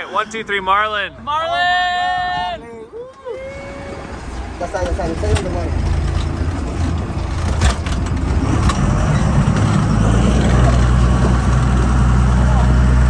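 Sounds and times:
boat engine running: 3.6s - 13.0s
knocks and rubbing on boat: 4.3s - 11.9s.

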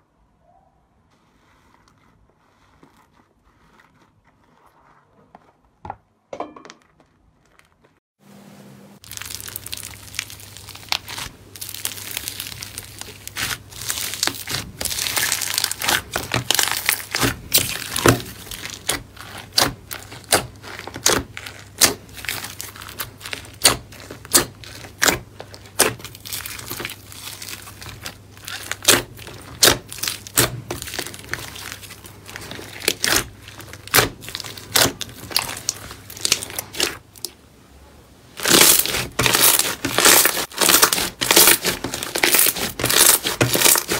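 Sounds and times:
slime crackling and popping: 9.0s - 37.4s, 38.4s - 43.9s.

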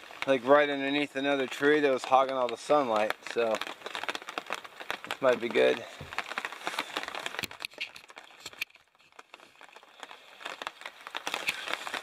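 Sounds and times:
rustling and crinkling handling noise: 0.0s - 12.0s.

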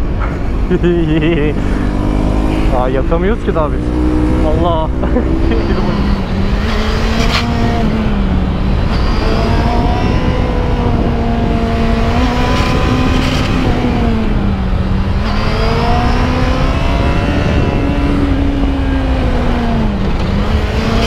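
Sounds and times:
motorcycle engine revving: 0.0s - 21.0s
wind rush: 0.0s - 21.0s.

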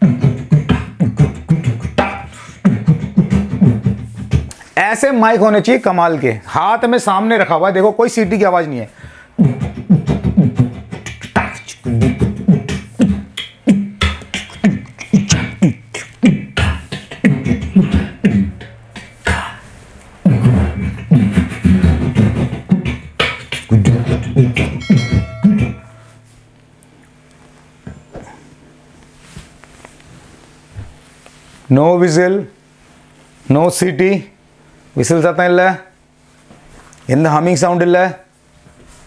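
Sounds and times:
man beatboxing through speakers: 0.0s - 4.7s, 7.3s - 25.9s.

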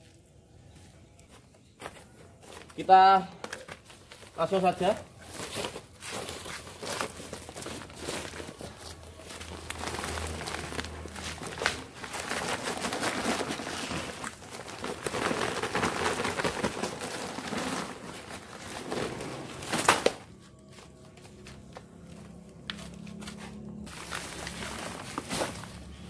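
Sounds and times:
plastic sack crinkling: 3.8s - 21.7s, 23.8s - 26.0s.

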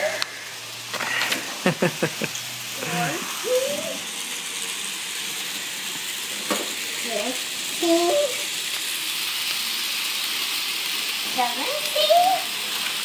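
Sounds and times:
child's high-pitched vocal sounds: 2.9s - 4.0s, 7.0s - 8.5s, 11.6s - 12.6s.

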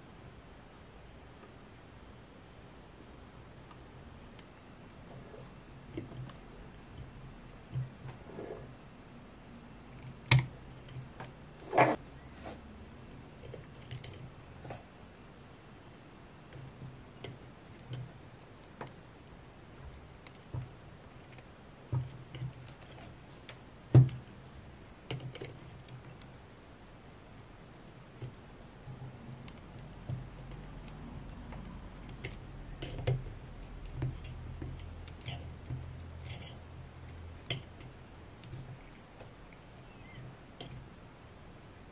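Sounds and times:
faint low hum: 0.0s - 41.9s
pliers clicking and scraping wires: 9.9s - 12.0s, 13.3s - 14.3s, 16.5s - 24.3s, 25.1s - 26.6s, 29.3s - 40.9s.

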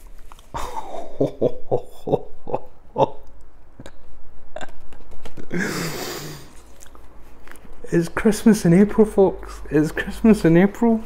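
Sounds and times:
man laughing: 0.6s - 6.6s.

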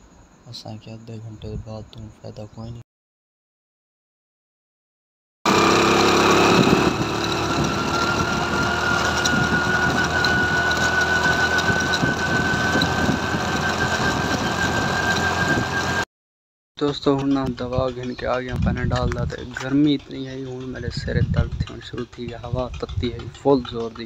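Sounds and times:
motorcycle engine running: 5.5s - 16.0s, 16.8s - 24.0s.

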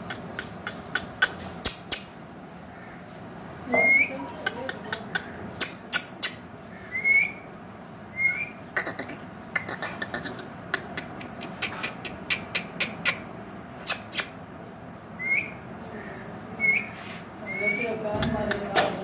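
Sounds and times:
sharp clicks: 0.0s - 2.2s, 4.7s - 6.4s
parakeet whistled calls: 6.9s - 7.4s, 15.2s - 15.6s, 16.6s - 18.0s.

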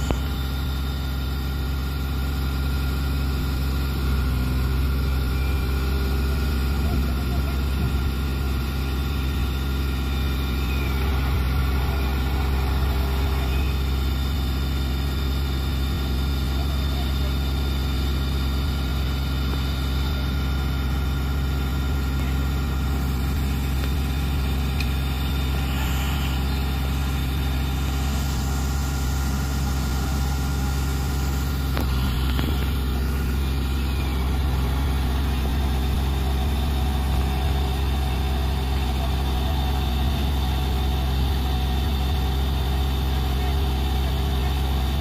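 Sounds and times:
diesel truck engine idling: 0.0s - 45.0s.

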